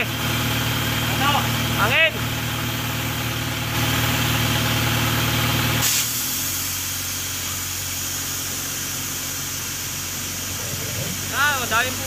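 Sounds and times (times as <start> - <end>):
air compressor engine running: 0.0 - 12.0
short air hiss: 5.8 - 11.4.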